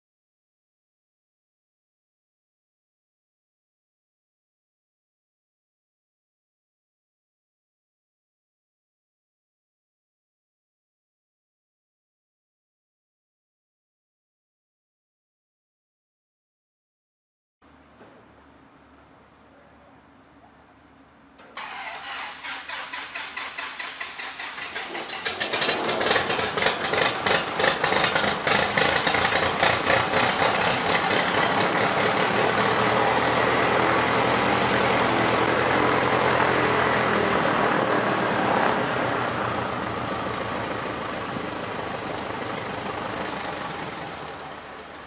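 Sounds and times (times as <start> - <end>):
starter motor cranking: 21.6 - 32.9
aircraft engine running: 21.6 - 45.0.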